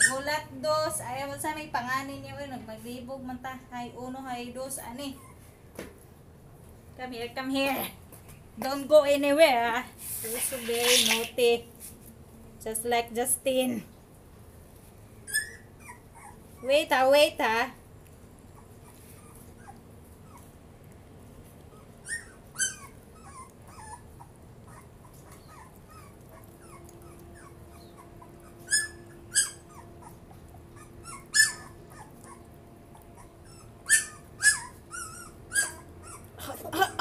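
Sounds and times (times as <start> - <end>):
puppy whimpering: 0.0 - 0.4, 5.0 - 5.5, 15.2 - 17.0, 18.4 - 20.6, 21.7 - 37.0.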